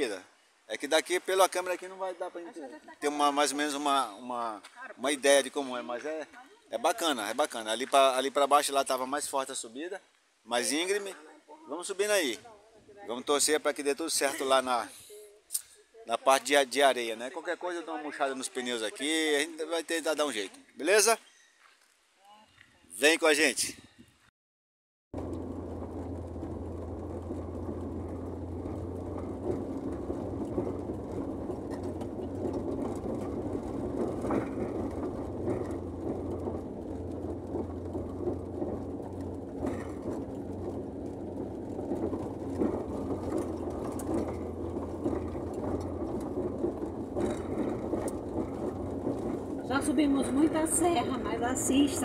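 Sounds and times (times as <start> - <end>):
van engine running under load: 25.1 - 52.0
tyre and body rattle: 25.2 - 52.0.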